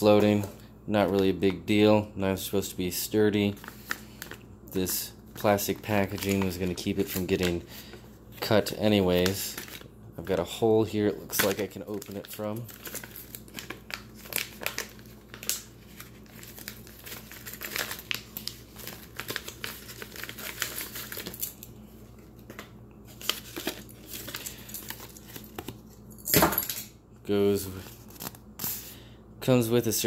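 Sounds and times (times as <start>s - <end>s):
plastic packaging crinkling: 3.4s - 26.1s.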